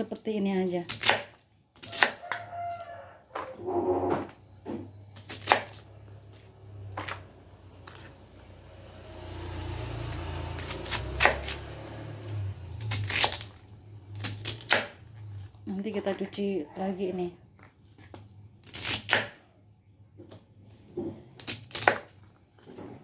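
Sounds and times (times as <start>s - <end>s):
knife chopping on wooden board: 0.9s - 2.4s, 10.6s - 11.7s, 14.2s - 15.0s, 18.7s - 19.4s, 20.2s - 23.0s.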